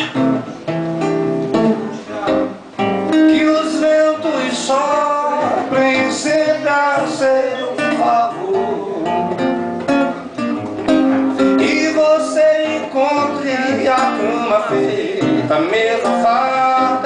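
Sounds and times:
classical guitar strumming: 0.0 - 17.0
man singing: 3.1 - 9.6, 11.4 - 17.0.

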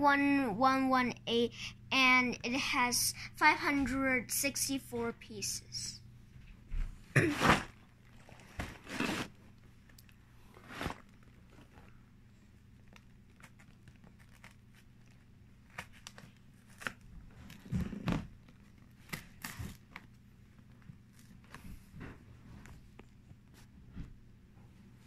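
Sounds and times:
cardboard box rustling and scraping: 8.4 - 9.3.

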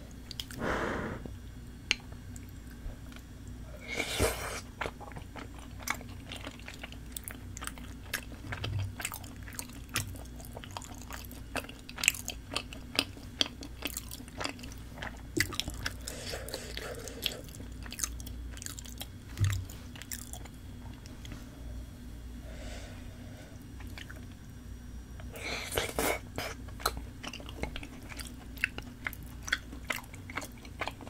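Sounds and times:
breathy rush: 0.6 - 1.3
wet chewing: 4.3 - 21.4, 25.8 - 31.0.

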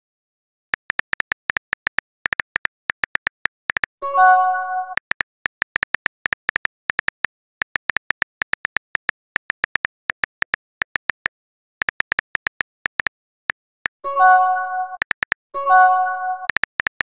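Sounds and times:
keyboard typing ticks: 0.8 - 17.0
message sent pop chime: 4.0 - 5.0, 14.1 - 15.0, 15.6 - 16.5.

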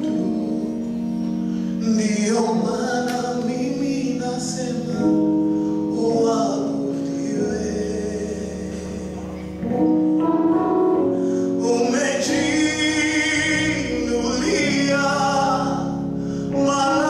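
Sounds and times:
instrumental backing: 0.0 - 17.0
man singing praise song: 1.7 - 9.5, 11.3 - 17.0.

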